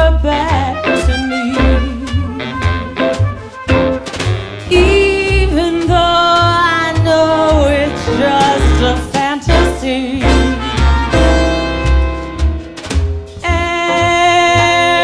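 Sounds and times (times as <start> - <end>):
piano: 0.0 - 15.0
upright bass notes: 0.0 - 15.0
alto saxophone melody: 0.4 - 5.5, 7.6 - 12.9.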